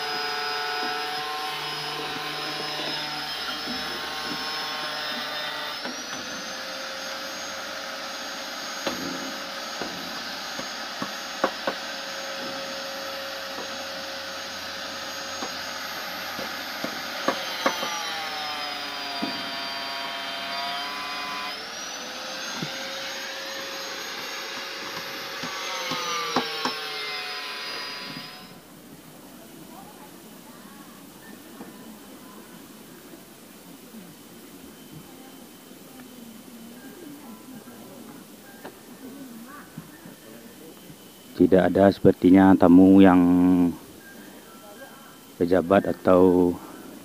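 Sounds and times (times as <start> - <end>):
power tool motor whining: 0.0 - 28.7.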